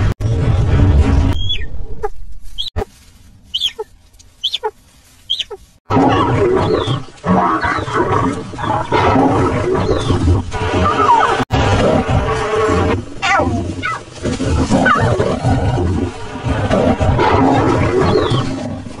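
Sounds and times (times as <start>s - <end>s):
lions growling and snarling: 5.9s - 19.0s.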